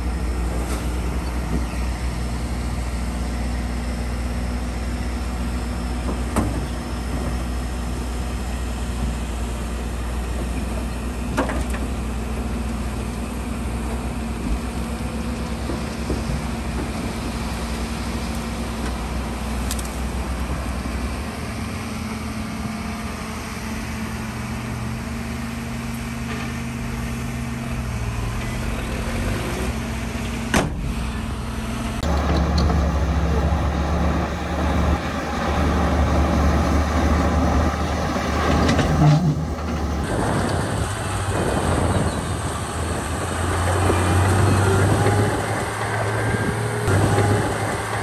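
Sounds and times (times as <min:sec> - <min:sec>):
diesel engines running: 0:00.0 - 0:48.0
loud low engine sound: 0:00.0 - 0:48.0.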